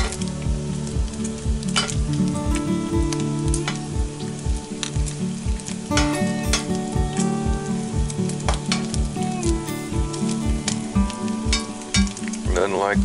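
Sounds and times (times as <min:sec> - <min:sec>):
background music with steady beat: 0:00.0 - 0:13.0
grease popping: 0:08.0 - 0:13.0.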